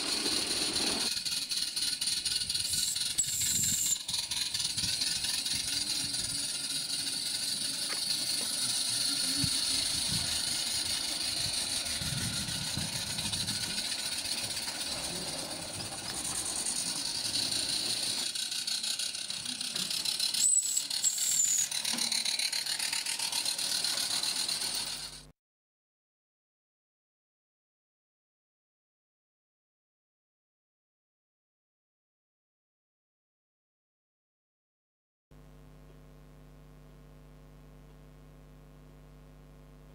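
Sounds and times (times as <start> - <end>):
high squeal of train: 0.0 - 25.2
model train wheels clattering: 0.0 - 25.3.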